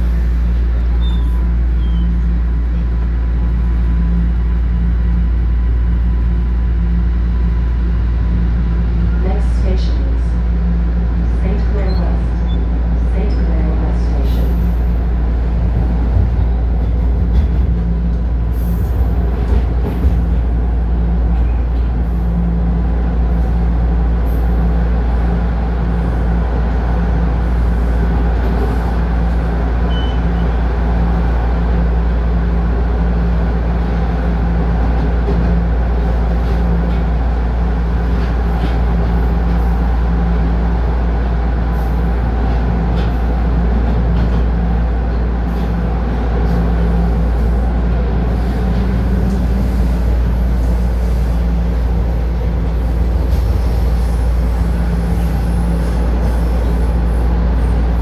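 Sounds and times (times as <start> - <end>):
subway car wheels rumbling: 0.0 - 58.0.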